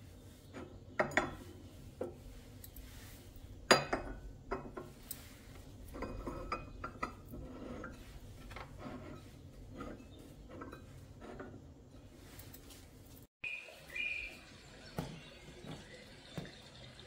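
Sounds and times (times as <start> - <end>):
glass and metal kitchenware clinking: 0.6 - 1.6, 3.7 - 5.3, 5.9 - 8.0, 9.0 - 12.1.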